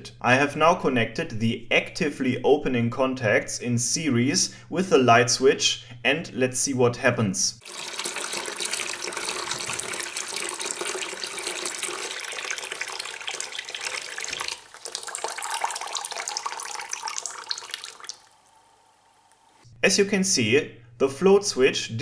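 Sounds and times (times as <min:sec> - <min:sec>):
hose water splashing into bucket: 0:07.6 - 0:18.6.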